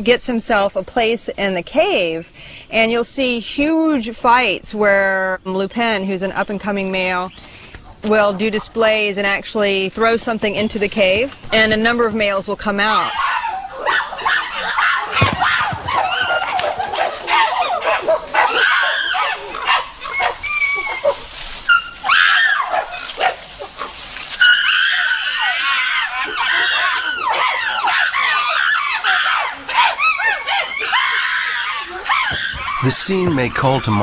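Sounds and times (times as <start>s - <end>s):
chimpanzees screaming: 12.8s - 34.0s
thump: 15.2s - 16.6s.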